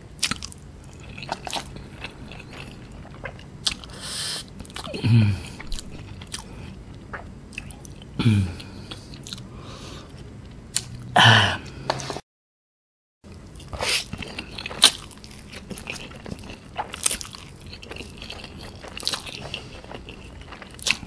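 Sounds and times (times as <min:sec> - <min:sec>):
person chewing noodles: 0:00.2 - 0:12.1, 0:13.4 - 0:21.0
breathy voiced hum: 0:03.8 - 0:10.3, 0:11.1 - 0:12.2.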